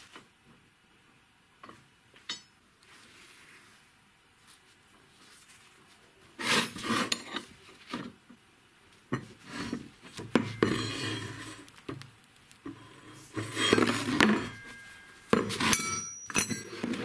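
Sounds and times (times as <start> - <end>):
metal scraping across bench: 9.4 - 11.7, 12.7 - 17.0.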